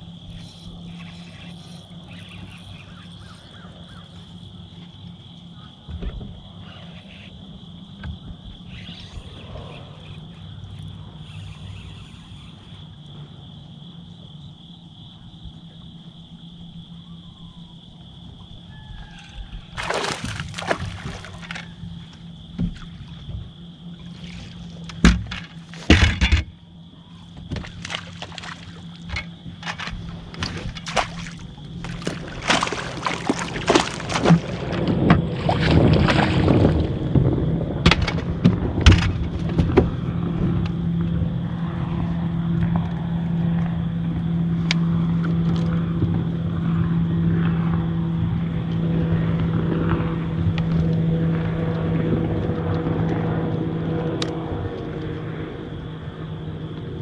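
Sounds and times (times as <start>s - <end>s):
steady low hum: 0.0s - 57.0s
steady high whine: 6.7s - 18.7s
fish splashing in water: 19.7s - 22.0s, 27.5s - 37.0s.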